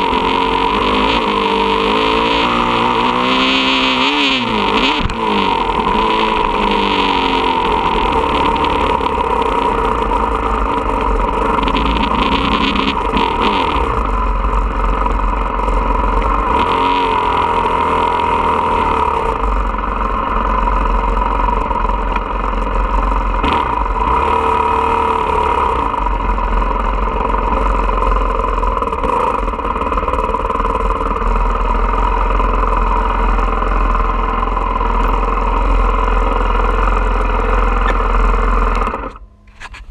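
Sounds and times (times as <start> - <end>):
dirt bike engine revving: 0.0 - 39.9.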